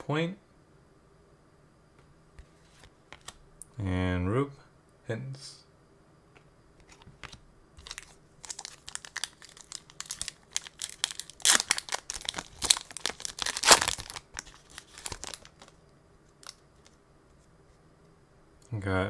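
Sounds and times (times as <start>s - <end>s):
foil wrapper crinkling and tearing: 7.8s - 15.8s.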